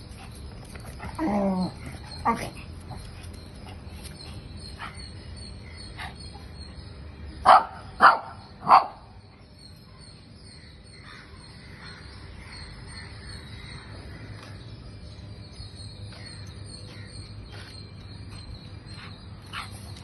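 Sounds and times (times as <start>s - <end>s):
dog barking: 7.5s - 9.0s.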